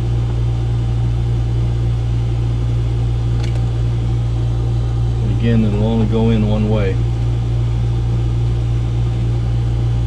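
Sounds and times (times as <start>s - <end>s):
low machinery hum: 0.0s - 10.0s
connector pin click: 3.4s - 3.7s.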